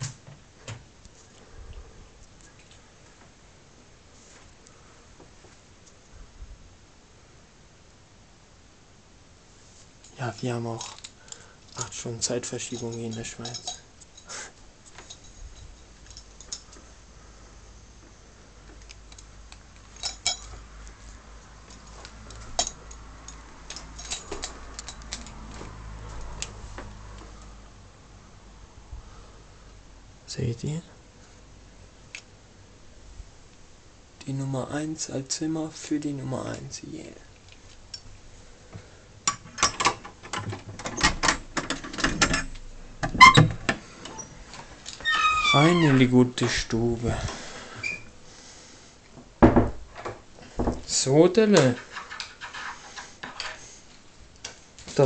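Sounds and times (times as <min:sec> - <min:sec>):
keys rattling in door lock: 0:12.6 - 0:14.3, 0:23.7 - 0:25.3
sharp clicks and light clinks: 0:12.6 - 0:16.9, 0:18.7 - 0:20.6, 0:21.7 - 0:25.4
door squeak: 0:43.1 - 0:44.4, 0:45.0 - 0:46.1, 0:47.8 - 0:48.1.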